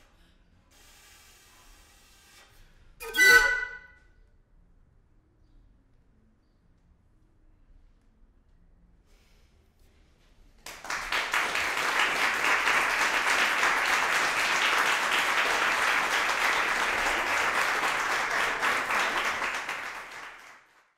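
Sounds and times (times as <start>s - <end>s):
audience applauding: 10.6s - 20.9s.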